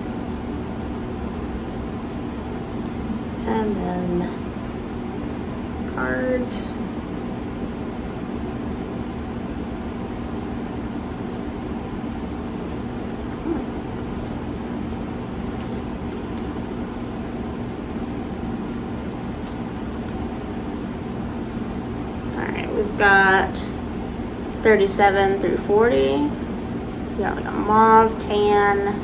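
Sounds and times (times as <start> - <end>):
low hum: 0.0 - 29.0
room heater whooshing: 0.0 - 29.0
plastic bag rustling: 14.4 - 17.2, 18.3 - 20.5.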